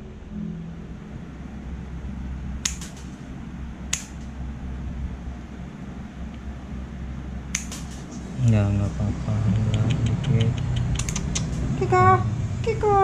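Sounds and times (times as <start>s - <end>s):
low room hum: 0.0s - 13.0s
nail clippers snipping claws: 2.6s - 3.1s, 3.9s - 4.2s, 7.5s - 8.0s, 9.7s - 11.6s.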